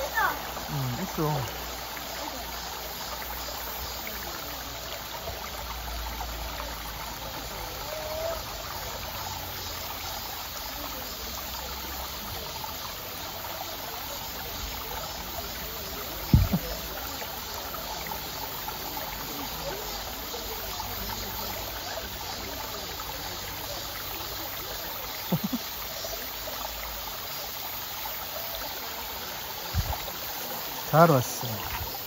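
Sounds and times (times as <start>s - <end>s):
stream running over rocks: 0.0s - 32.0s
dull low thump: 16.2s - 16.8s, 29.7s - 30.0s.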